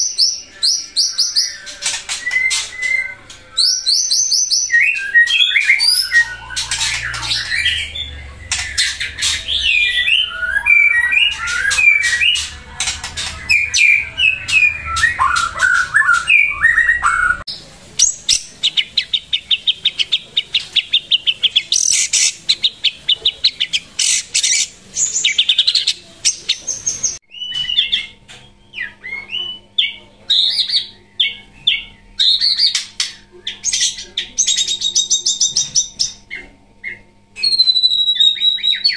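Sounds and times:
bird singing whistled phrases: 0:00.0 - 0:12.5, 0:13.5 - 0:17.4, 0:37.4 - 0:38.9.

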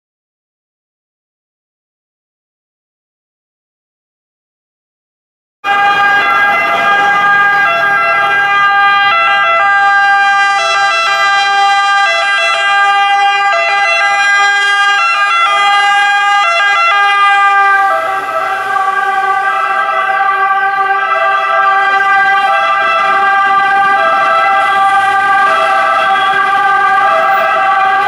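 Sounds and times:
two-tone fire engine siren: 0:05.6 - 0:28.0.

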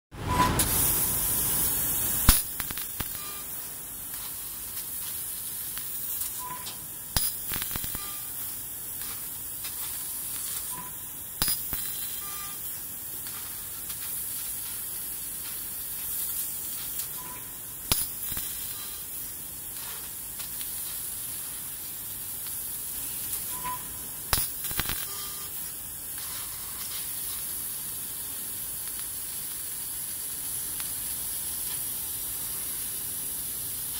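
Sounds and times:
laser cutter gas jet hissing: 0:00.5 - 0:33.9
sharp cracks: 0:02.3 - 0:03.2.

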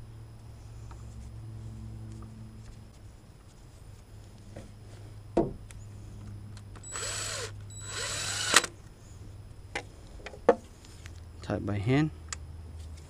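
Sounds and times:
cordless driver spinning: 0:06.8 - 0:08.8.

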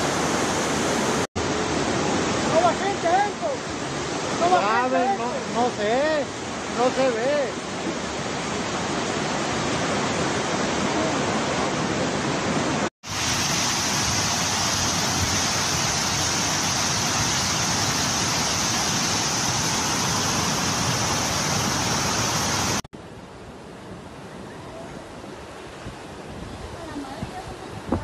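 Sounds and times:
flood water rushing down street: 0:00.0 - 0:22.9.

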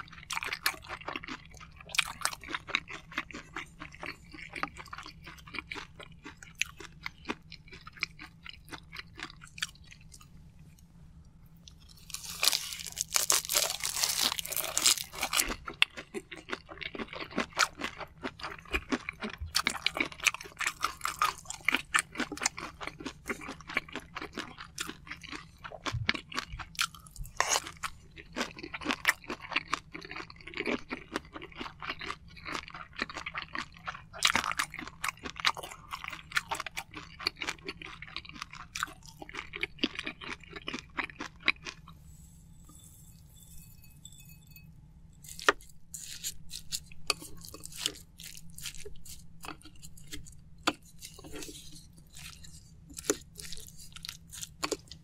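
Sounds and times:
wet chewing: 0:11.6 - 0:42.0, 0:45.2 - 0:55.0.

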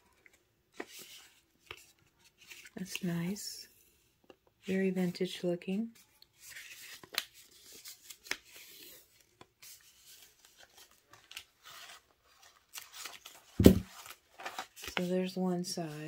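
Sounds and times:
faint tape rustling: 0:06.0 - 0:15.1.

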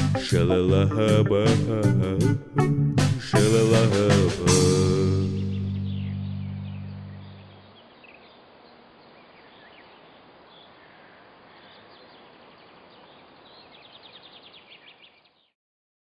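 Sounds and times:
music: 0:00.0 - 0:07.3
bird trill: 0:05.2 - 0:15.5
small birds chirping: 0:05.2 - 0:15.6
steady hiss: 0:07.7 - 0:14.8.

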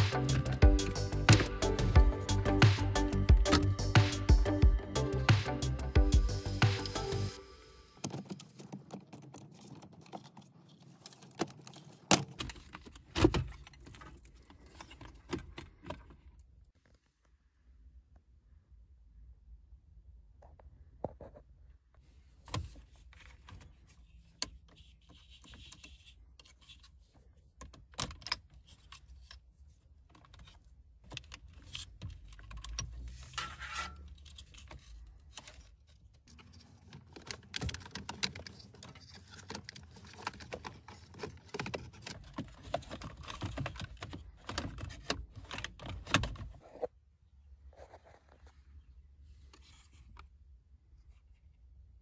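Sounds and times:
plastic scraping: 0:31.2 - 0:46.9.

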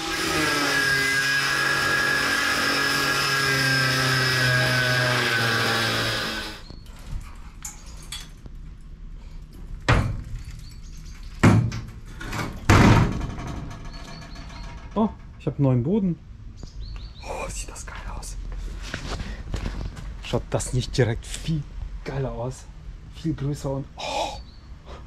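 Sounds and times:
angle grinder cutting sheet metal: 0:00.0 - 0:06.6.

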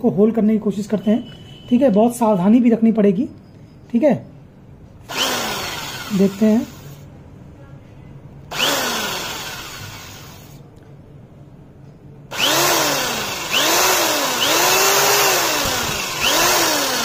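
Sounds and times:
electric drill whining in bursts: 0:05.1 - 0:07.0, 0:08.5 - 0:10.6, 0:12.3 - 0:17.0.

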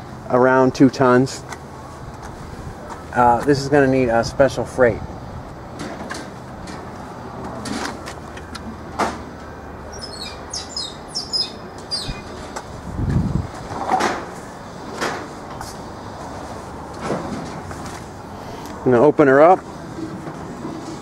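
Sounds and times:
small bird chirping: 0:09.9 - 0:12.4.

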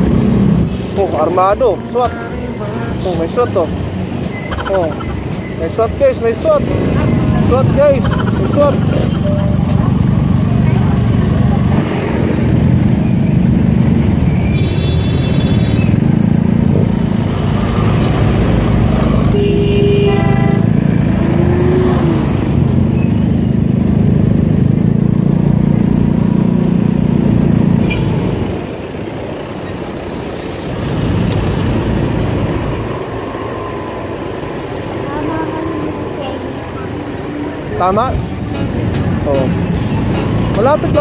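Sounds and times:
road and wind noise: 0:00.0 - 0:41.0
motorcycle engine running: 0:03.8 - 0:28.2
vehicle horn beeping: 0:14.4 - 0:15.9, 0:19.3 - 0:20.8
loud horn honking: 0:19.2 - 0:21.0.

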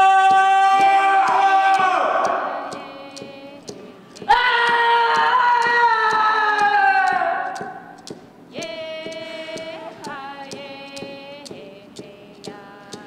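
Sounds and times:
light ticking: 0:00.0 - 0:13.0
voices singing held notes: 0:00.0 - 0:13.0.

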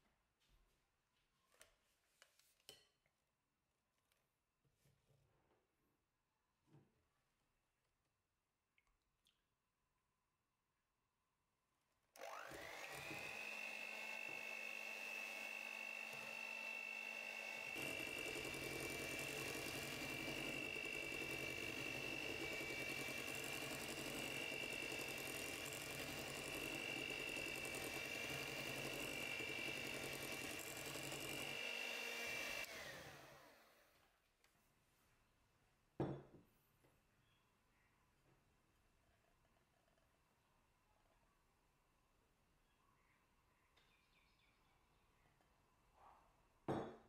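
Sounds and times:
electric hand mixer whine: 0:12.2 - 0:33.9.

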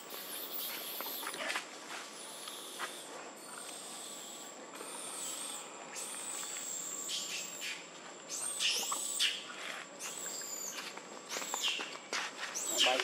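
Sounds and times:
high-pitched animal calls: 0:02.2 - 0:11.9.

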